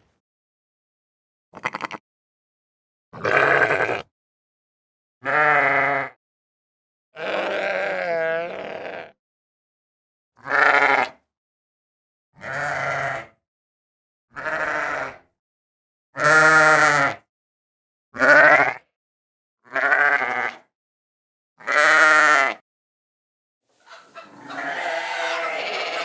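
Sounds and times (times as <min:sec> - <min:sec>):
sheep bleating: 0:01.6 - 0:02.0, 0:03.2 - 0:04.1, 0:05.2 - 0:06.2, 0:07.2 - 0:09.2, 0:10.4 - 0:11.1, 0:12.4 - 0:13.4, 0:14.3 - 0:15.2, 0:16.2 - 0:17.2, 0:18.2 - 0:18.8, 0:19.6 - 0:20.6, 0:21.6 - 0:22.6, 0:23.9 - 0:26.0.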